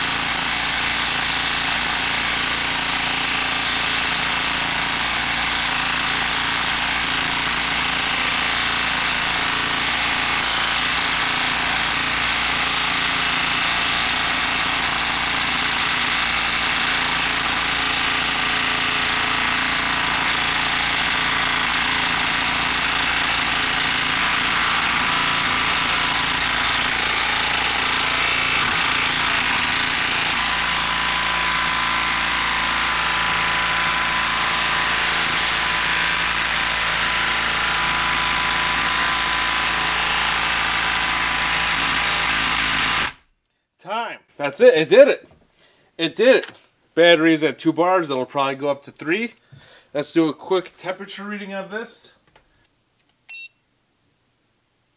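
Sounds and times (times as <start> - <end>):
impact driver hammering: 0.0 - 43.2.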